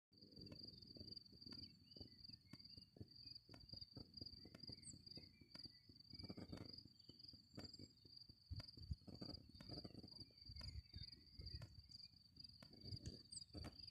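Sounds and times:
crickets trilling: 0.3s - 13.9s
wind rumble: 7.6s - 13.9s.

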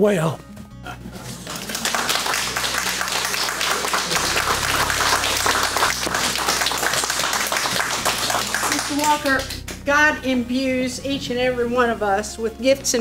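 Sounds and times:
audience applauding: 1.2s - 9.6s.

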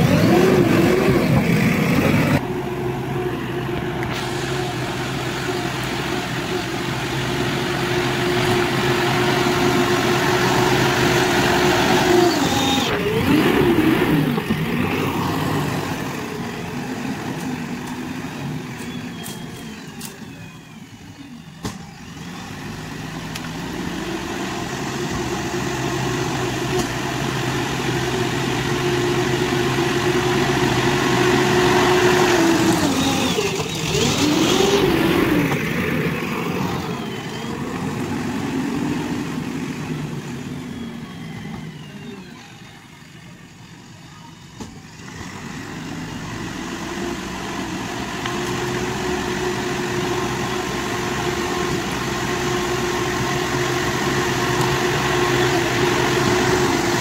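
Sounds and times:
diesel engine working under load: 0.0s - 57.0s.

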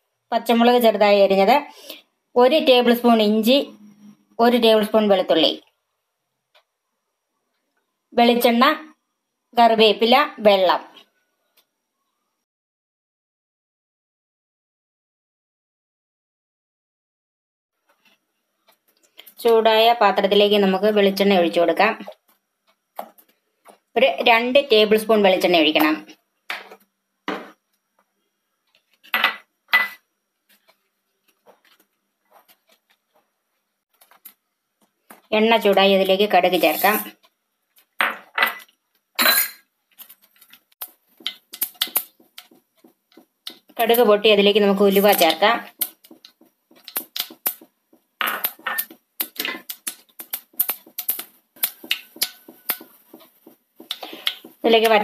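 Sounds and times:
seeds popping in hot oil: 33.9s - 55.0s
kitchenware clattering: 48.2s - 49.7s.

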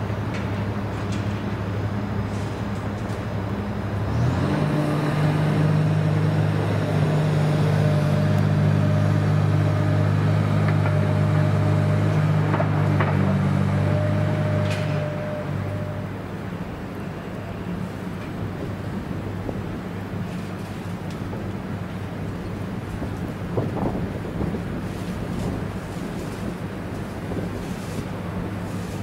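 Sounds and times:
excavator diesel engine running: 0.0s - 20.7s.

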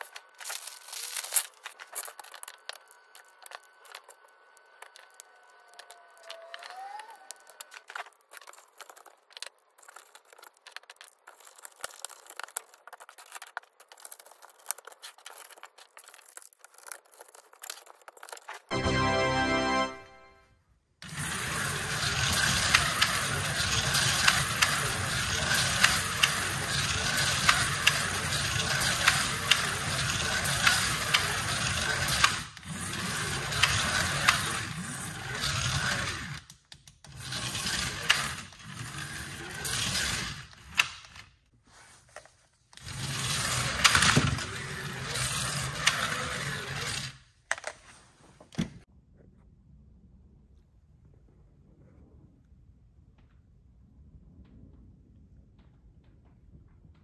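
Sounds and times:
slot car motors whirring: 0.0s - 8.2s, 21.0s - 36.5s, 37.1s - 41.0s, 42.8s - 47.2s.

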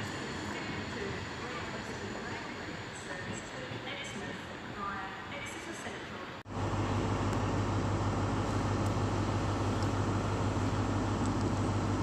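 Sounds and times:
diesel train engine idling: 6.5s - 12.0s.

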